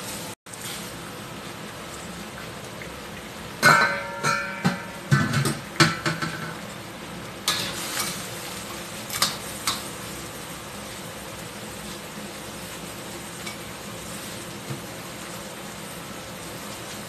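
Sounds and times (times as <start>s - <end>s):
food sizzling: 0.0s - 17.0s
metal spatula clanking in a wok: 3.6s - 6.6s, 7.5s - 8.2s.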